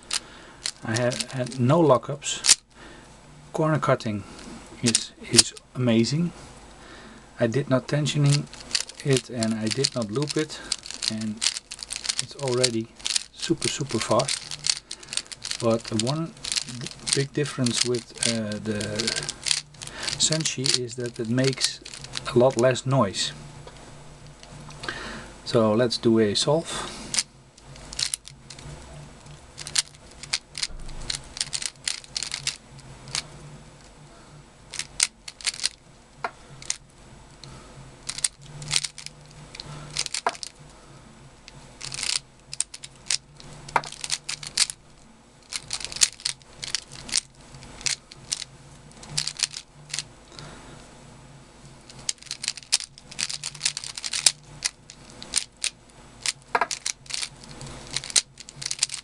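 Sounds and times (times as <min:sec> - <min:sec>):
puzzle cube clicking: 0:00.0 - 0:01.6, 0:08.2 - 0:22.6, 0:27.1 - 0:33.3, 0:34.7 - 0:35.8, 0:36.6 - 0:36.8, 0:38.0 - 0:40.6, 0:41.8 - 0:44.8, 0:45.4 - 0:50.4, 0:51.9 - 0:59.0.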